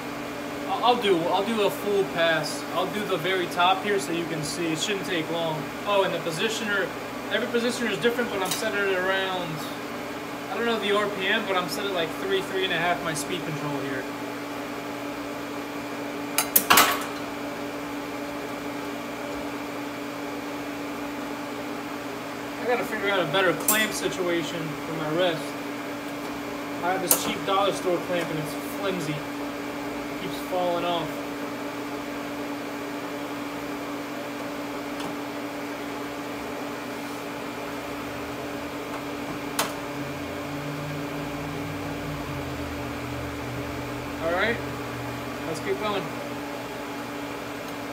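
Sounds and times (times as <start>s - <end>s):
machine hum: 0.0s - 47.9s
low motor hum: 36.1s - 47.9s.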